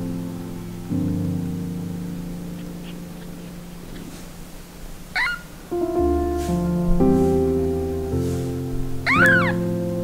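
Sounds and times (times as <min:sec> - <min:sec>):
sustained music chord: 0:05.7 - 0:10.0.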